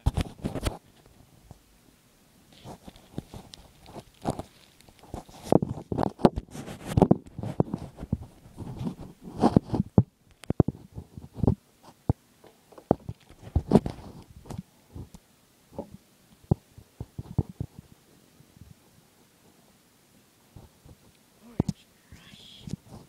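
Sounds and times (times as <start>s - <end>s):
microphone handling rubs and knocks: 2.6s - 12.0s, 12.9s - 15.1s, 15.8s - 17.9s.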